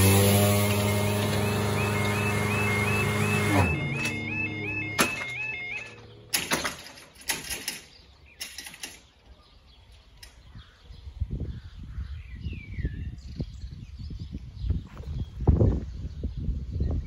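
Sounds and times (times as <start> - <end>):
metallic clanking and rattling: 5.0 - 9.1
wind rumble on microphone: 10.2 - 17.0.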